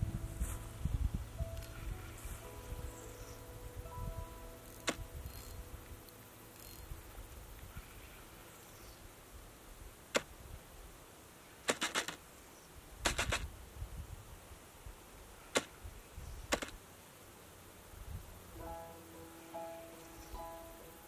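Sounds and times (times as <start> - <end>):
low rumble: 0.0 - 8.5
fishing reel clicking: 4.6 - 7.4.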